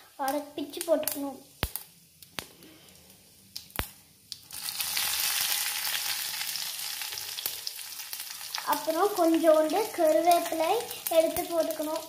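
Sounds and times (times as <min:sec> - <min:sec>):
chillies sizzling in hot oil: 0:00.0 - 0:12.0.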